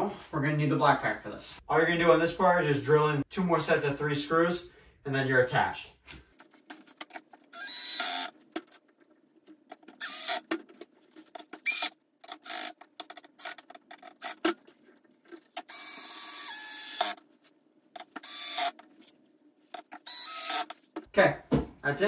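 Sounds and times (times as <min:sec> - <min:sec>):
cordless drill driving screws: 0:07.5 - 0:08.3, 0:10.0 - 0:10.5, 0:11.6 - 0:12.7, 0:15.7 - 0:17.2, 0:18.2 - 0:18.8, 0:20.0 - 0:20.7.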